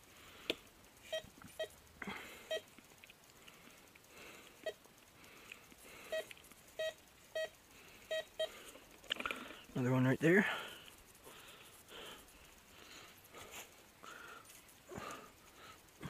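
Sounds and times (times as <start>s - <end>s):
metal detector short beeps: 6.1s - 8.5s.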